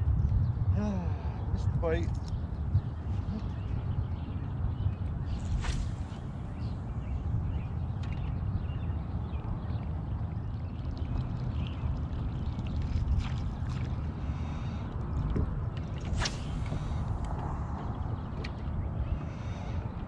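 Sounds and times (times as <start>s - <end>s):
steady low rumble: 0.0s - 20.0s
water lapping against boat hull: 10.6s - 18.8s.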